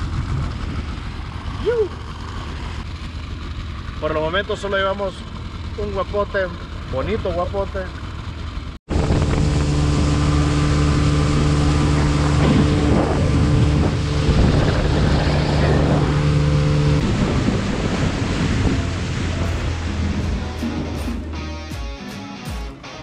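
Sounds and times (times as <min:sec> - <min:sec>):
motorboat engine running: 0:00.0 - 0:21.8
wind buffeting microphone: 0:08.9 - 0:20.8
water rushing past: 0:08.9 - 0:21.4.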